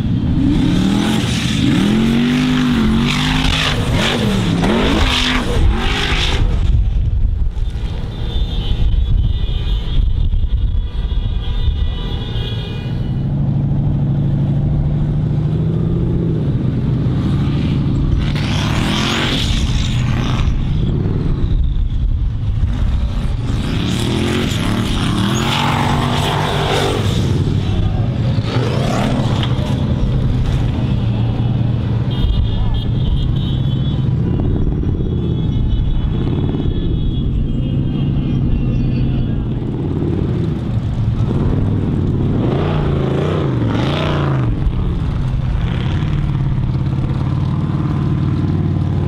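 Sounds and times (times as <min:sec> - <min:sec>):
buggy engine revving: 0:00.0 - 0:06.7, 0:15.0 - 0:21.3, 0:22.6 - 0:30.8, 0:39.6 - 0:49.0.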